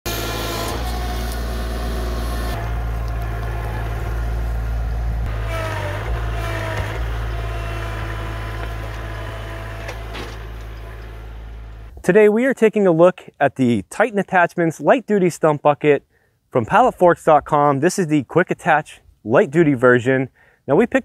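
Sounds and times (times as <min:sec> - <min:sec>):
tractor diesel engine running: 0:00.1 - 0:12.0.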